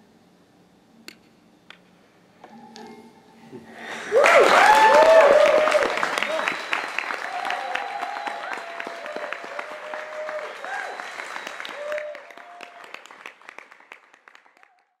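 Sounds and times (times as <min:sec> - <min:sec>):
audience applauding: 0:04.0 - 0:15.0.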